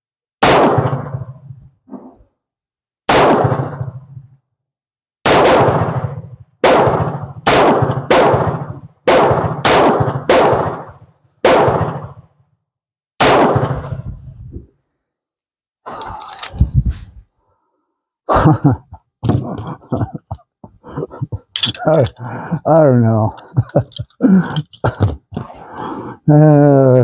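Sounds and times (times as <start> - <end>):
pistol shots: 0.4 - 1.3, 3.1 - 4.0, 5.2 - 12.2, 13.2 - 14.0.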